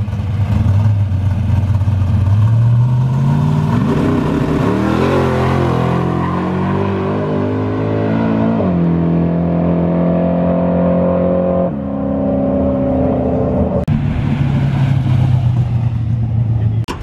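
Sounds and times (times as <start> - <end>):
car engine revving high: 2.9 - 15.6.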